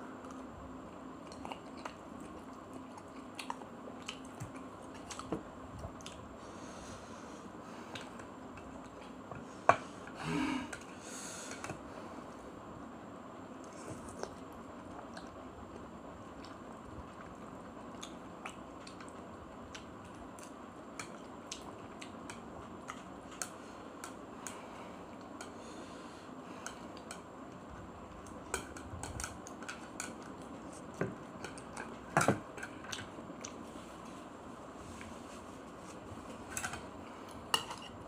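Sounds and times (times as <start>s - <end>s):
background hiss: 9.4s - 15.0s.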